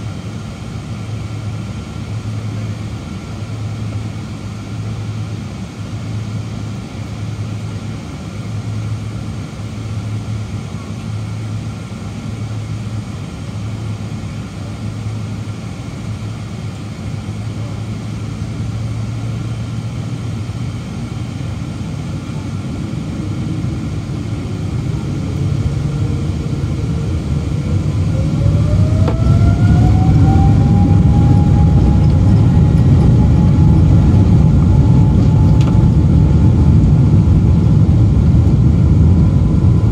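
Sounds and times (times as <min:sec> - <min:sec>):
jet engines spooling up: 0:20.7 - 0:39.9.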